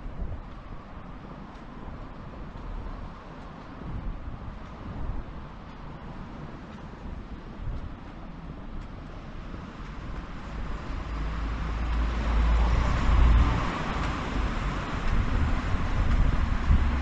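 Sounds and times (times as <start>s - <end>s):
vehicle passing: 9.9s - 17.0s.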